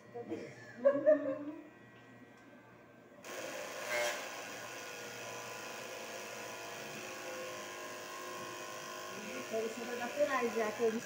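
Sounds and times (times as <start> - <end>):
hair clippers buzzing: 3.2 - 11.0.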